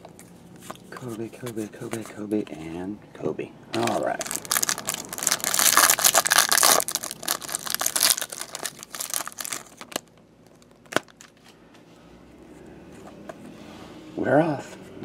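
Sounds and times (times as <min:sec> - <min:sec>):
plastic wrapper tearing and crinkling: 0:04.1 - 0:11.3.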